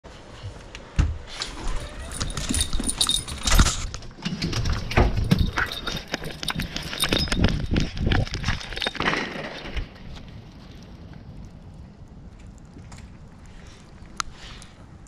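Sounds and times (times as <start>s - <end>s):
dog tags jingling: 1.8s - 9.6s
dog claws clicking: 2.1s - 9.2s.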